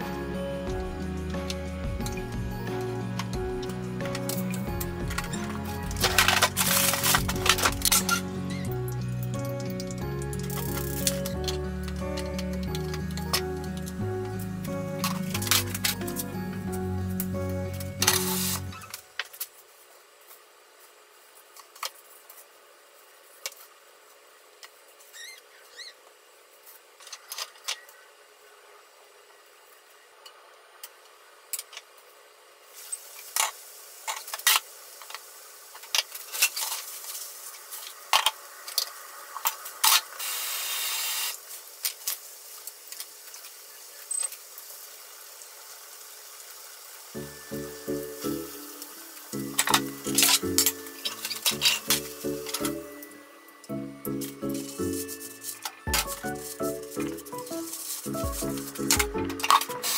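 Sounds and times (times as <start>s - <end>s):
fish sizzling in hot oil: 18.0s - 18.8s, 32.7s - 52.7s.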